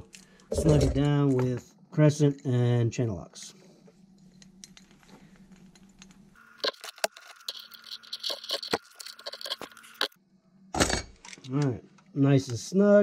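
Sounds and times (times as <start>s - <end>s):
metal clicks and scrapes: 4.3s - 10.2s.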